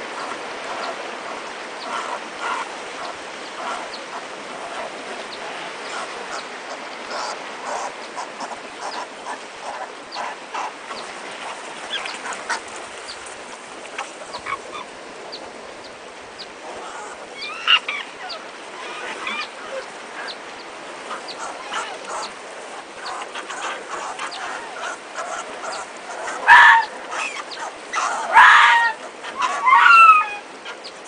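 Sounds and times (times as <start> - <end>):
fox pups squeaking and yelping: 23.1 - 30.5.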